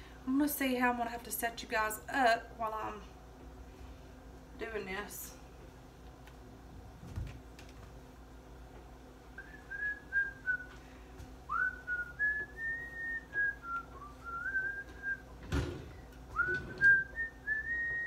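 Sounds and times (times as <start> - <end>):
person whistling a tune: 9.4 - 10.8, 11.5 - 15.3, 16.4 - 18.0
thump: 15.4 - 15.9.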